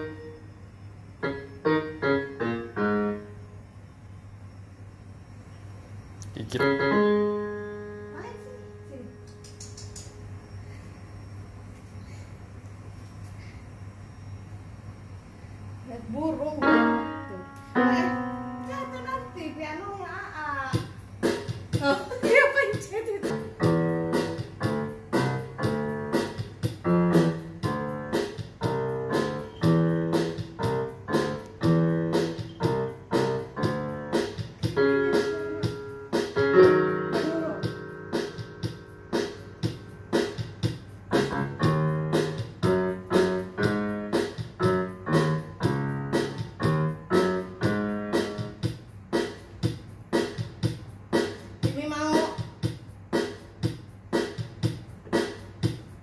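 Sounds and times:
electronic keyboard playing a tune: 0.0s - 0.4s, 16.6s - 19.6s, 23.2s - 48.8s.

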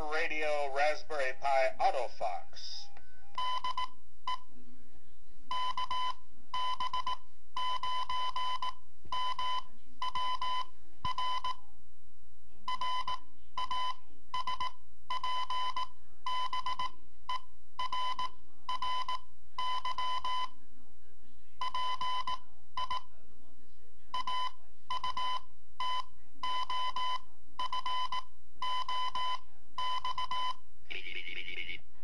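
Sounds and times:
morse code beeps: 3.4s - 4.4s, 5.5s - 11.6s, 12.7s - 20.5s, 21.6s - 23.1s, 24.2s - 31.0s.

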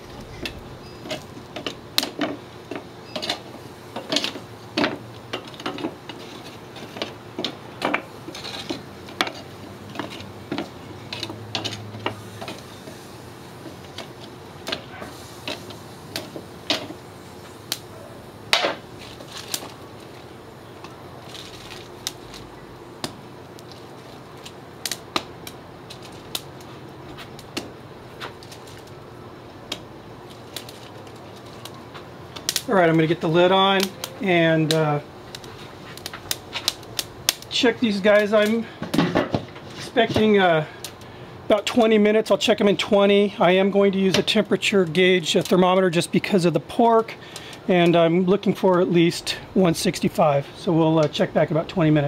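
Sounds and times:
low hiss: 0.0s - 38.8s
charcoal grill crackling: 0.0s - 52.0s.

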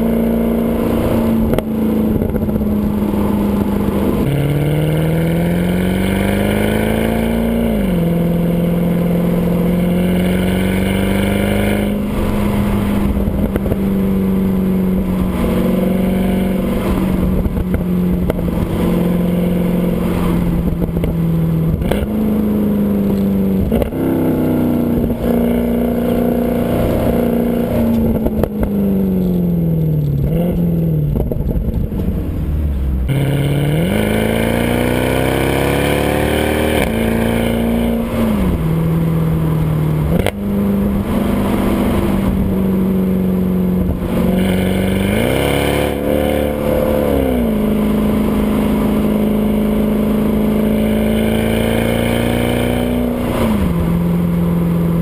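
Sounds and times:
car engine exhaust: 0.0s - 55.0s.

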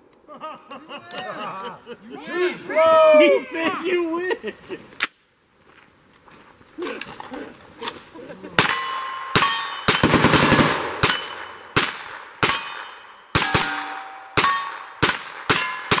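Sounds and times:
metallic ringing of targets: 8.6s - 11.8s, 12.4s - 16.0s
gunshots: 8.6s - 16.0s.

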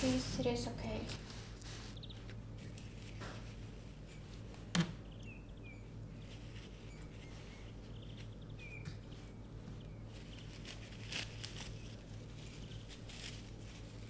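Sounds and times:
faint high chirps: 5.1s - 10.5s
tissue paper rustling: 6.2s - 8.4s, 9.1s - 14.0s.

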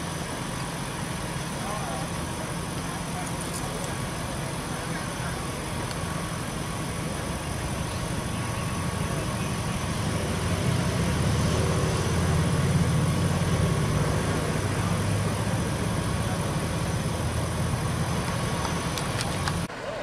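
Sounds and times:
faint whining tones: 0.0s - 11.4s
low engine drone: 0.0s - 20.0s.

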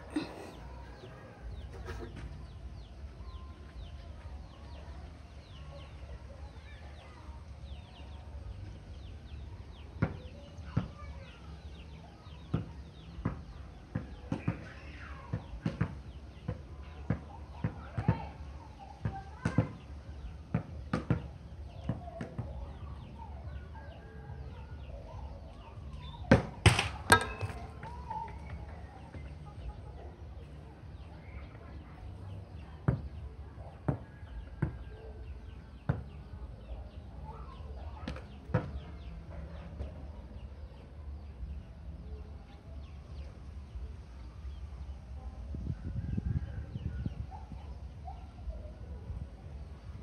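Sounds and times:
chickens clucking: 0.0s - 2.4s.

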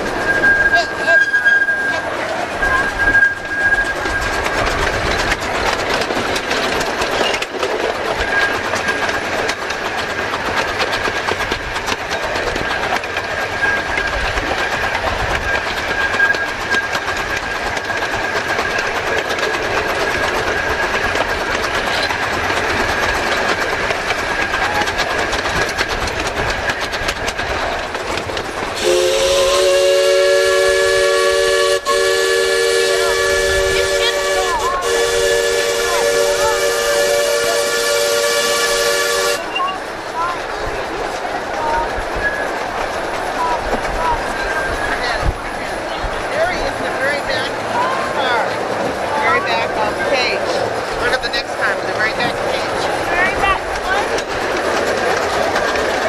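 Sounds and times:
train rumbling clatter: 0.0s - 56.0s
thin high squeal: 0.2s - 4.3s
steam whistle chord: 28.8s - 39.4s.

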